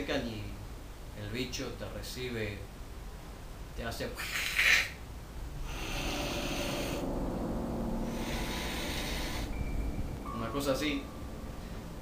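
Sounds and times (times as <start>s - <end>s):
cat hissing: 4.2s - 5.0s, 5.6s - 7.0s, 8.1s - 9.5s
cat growling low: 5.6s - 7.1s, 8.0s - 9.6s.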